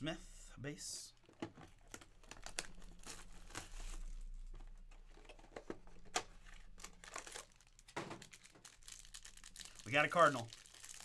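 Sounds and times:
cardboard packaging crinkling and tearing: 1.9s - 4.4s, 6.7s - 11.0s.

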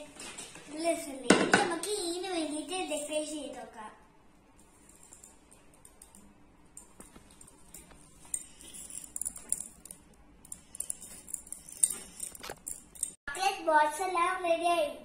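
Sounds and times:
sprinkles rattling against a dish: 4.6s - 13.2s.

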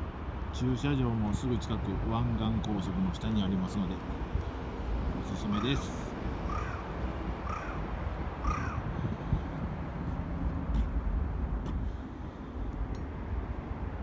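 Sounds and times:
crow cawing: 6.5s - 9.0s.

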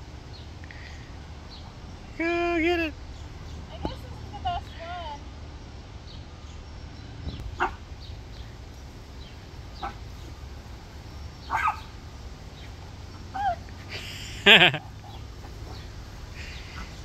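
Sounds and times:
small dog yipping and barking: 11.5s - 11.9s.

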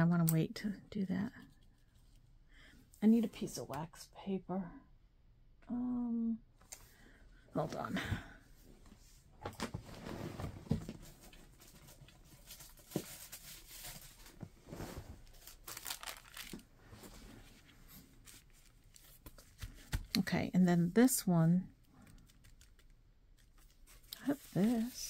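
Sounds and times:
paper rustling and crinkling: 10.7s - 20.2s, 22.0s - 25.0s.

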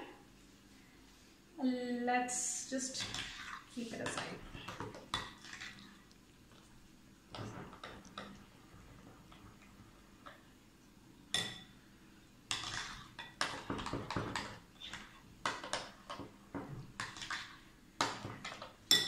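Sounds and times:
spoon scraping bowl: 3.0s - 5.9s.

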